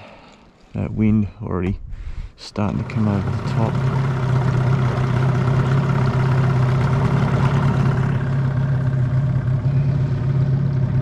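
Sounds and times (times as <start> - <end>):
outboard motor running: 2.6 - 11.0.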